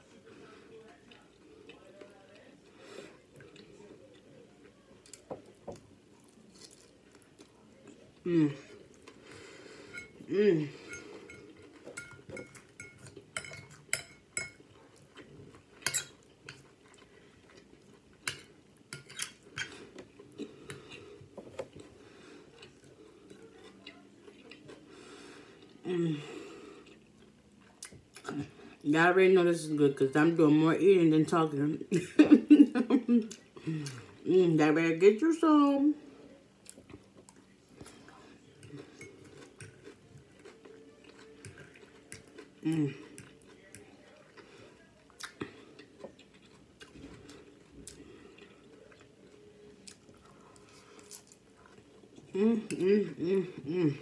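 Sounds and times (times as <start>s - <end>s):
cutlery clinking against a dish: 9.8s - 10.2s, 10.8s - 14.8s, 15.8s - 16.6s, 18.2s - 19.8s.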